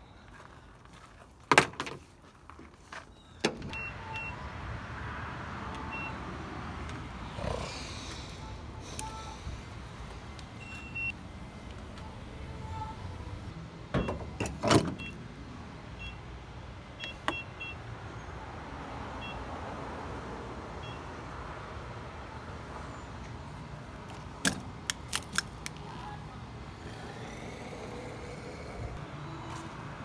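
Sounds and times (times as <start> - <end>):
keypad beeps: 17.0 - 17.8.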